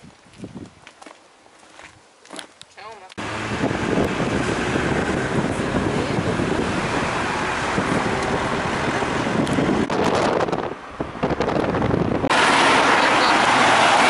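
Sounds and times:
wind on microphone: 0.0s - 0.9s, 3.2s - 12.4s
street traffic: 2.3s - 14.0s.

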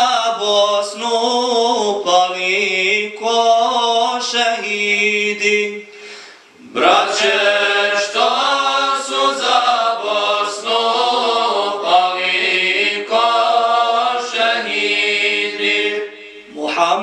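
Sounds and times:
men singing a cappella hymn: 6.6s - 17.0s.

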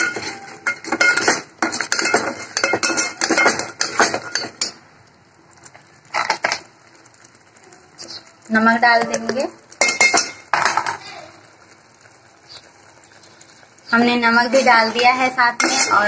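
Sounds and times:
metal spatula scraping a metal pot: 0.0s - 4.7s, 13.9s - 16.0s.

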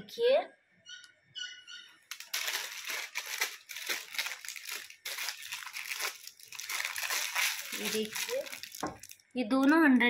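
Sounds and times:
plastic packaging crinkling: 2.0s - 10.0s.

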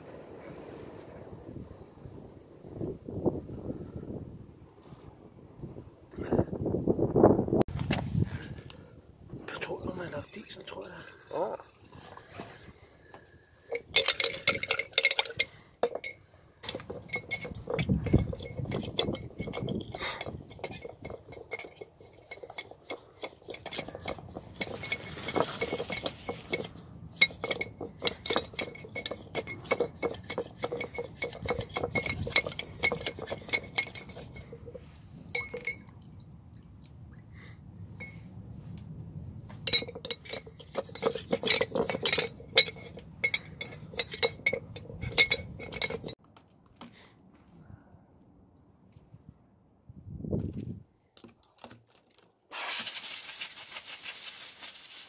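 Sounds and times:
metal part clinking in glass jar: 13.7s - 35.9s, 39.7s - 46.2s.

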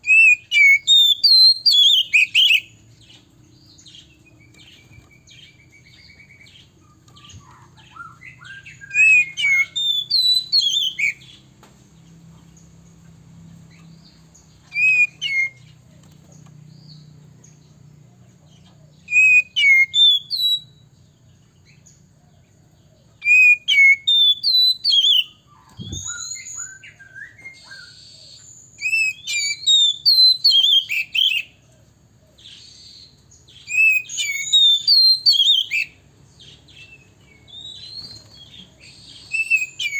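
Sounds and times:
bird singing whistled phrases: 0.0s - 2.8s, 3.8s - 11.4s, 14.6s - 15.8s, 19.0s - 20.8s, 23.2s - 31.6s, 32.4s - 39.9s.

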